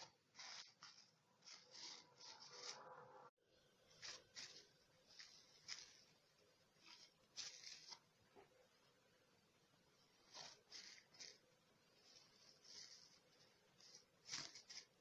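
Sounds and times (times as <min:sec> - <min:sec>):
cling film rustling and crinkling: 0:00.0 - 0:02.9, 0:03.9 - 0:08.5, 0:10.2 - 0:15.0.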